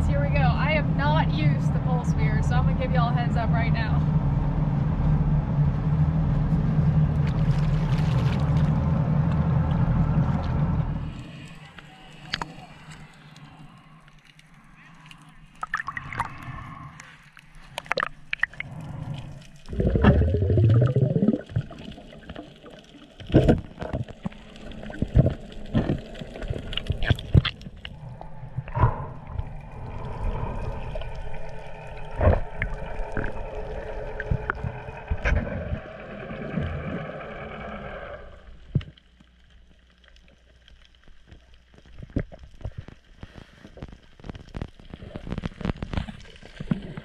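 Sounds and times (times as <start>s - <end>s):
muffled underwater gurgling: 17.8s - 38.8s.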